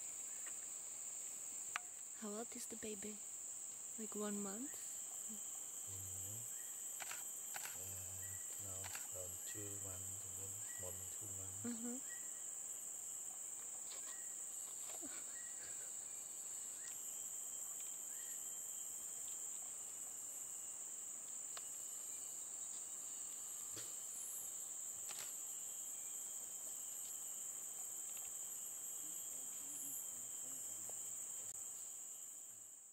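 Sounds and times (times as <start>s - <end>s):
insects droning: 0.0s - 32.9s
faint human voices: 7.8s - 11.8s.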